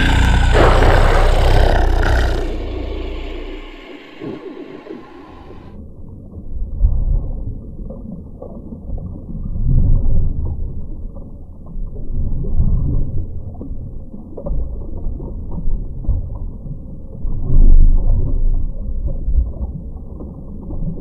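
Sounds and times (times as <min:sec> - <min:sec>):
muffled low rumble: 0:00.0 - 0:05.8.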